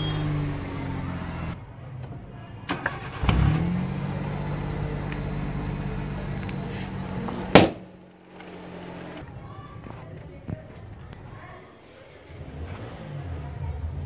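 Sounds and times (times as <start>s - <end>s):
car engine idling: 0.0s - 1.8s, 2.6s - 9.2s
balloon bursting bang: 7.5s - 7.9s.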